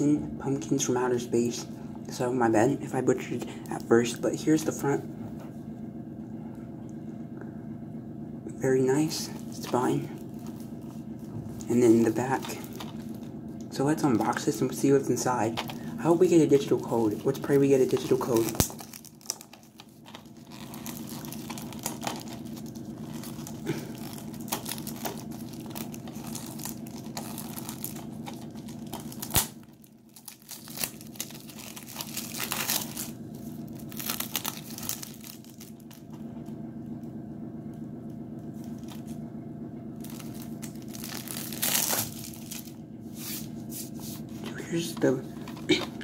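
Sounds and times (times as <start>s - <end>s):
cellophane crinkling and tearing: 9.2s - 13.4s, 15.2s - 36.6s, 38.1s - 39.2s, 40.0s - 42.8s.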